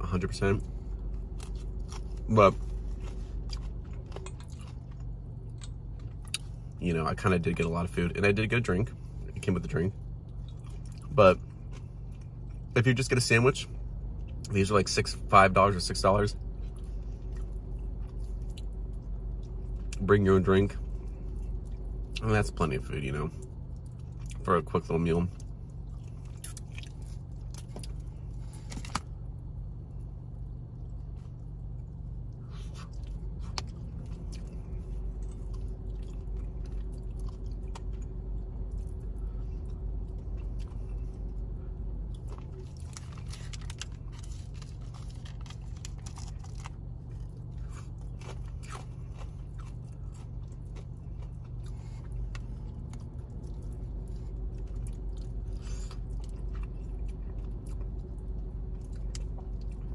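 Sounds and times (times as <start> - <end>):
crunching fried chicken: 0.2 - 59.9
person chewing: 0.6 - 6.8, 25.3 - 29.6, 30.4 - 59.9.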